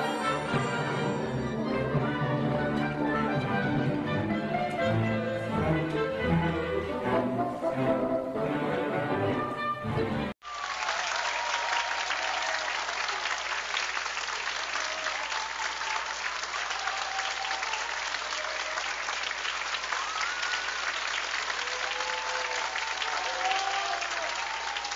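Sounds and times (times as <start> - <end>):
audience applauding: 10.4 - 24.9.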